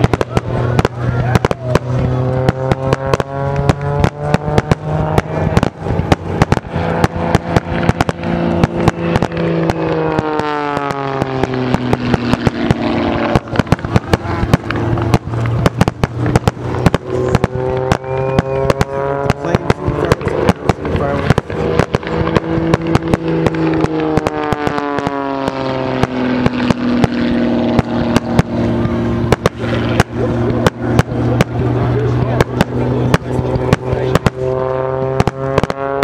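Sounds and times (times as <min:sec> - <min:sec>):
falling pitched tone: 0:00.0 - 0:36.0
fireworks bangs and crackles: 0:00.0 - 0:36.0
steady pitched hum: 0:00.0 - 0:36.0.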